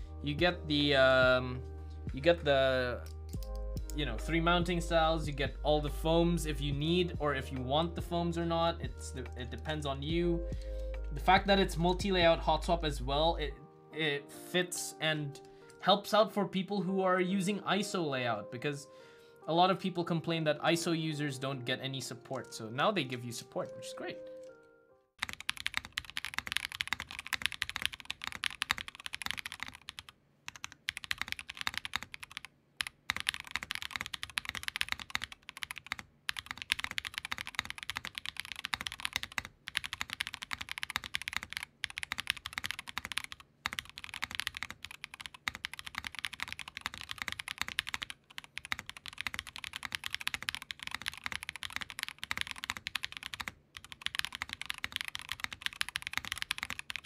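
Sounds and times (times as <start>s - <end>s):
mechanical keyboard typing: 25.2s - 57.0s.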